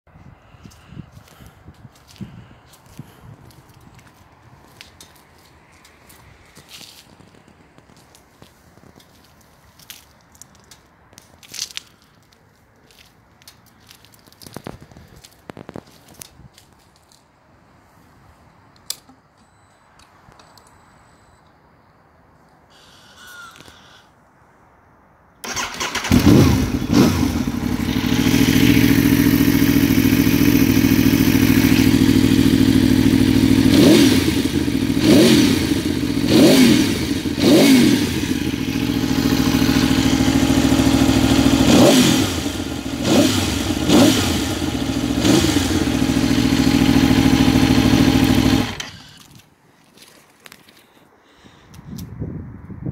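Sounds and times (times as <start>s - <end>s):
motorcycle engine idling: 25.5s - 49.0s.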